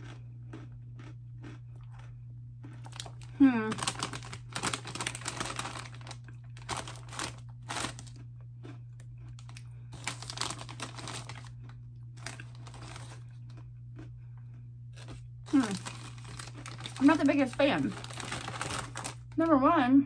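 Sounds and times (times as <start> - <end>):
snack bag rustling: 0.0 - 14.1, 14.9 - 19.5
crunchy chewing: 0.0 - 19.4
steady low hum: 0.0 - 20.0.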